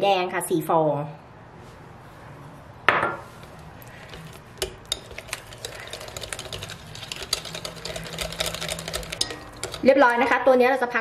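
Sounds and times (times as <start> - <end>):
whisk clicking in glass bowl: 4.0 - 10.3.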